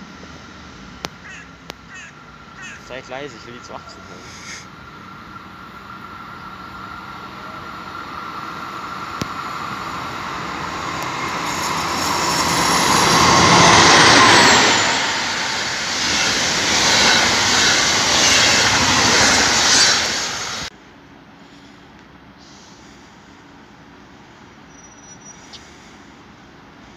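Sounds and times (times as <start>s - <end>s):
passenger coaches rumbling on track: 0.0s - 21.3s
diesel locomotive engines passing: 0.0s - 26.9s.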